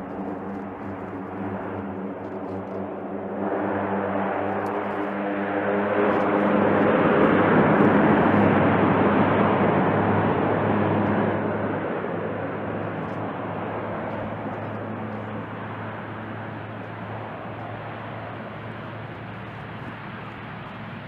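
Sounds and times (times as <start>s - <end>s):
deep propeller drone: 0.0s - 21.0s.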